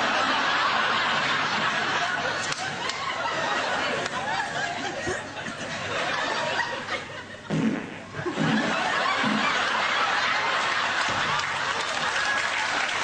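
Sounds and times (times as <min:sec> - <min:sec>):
audience laughing: 0:00.0 - 0:07.5, 0:08.1 - 0:13.0.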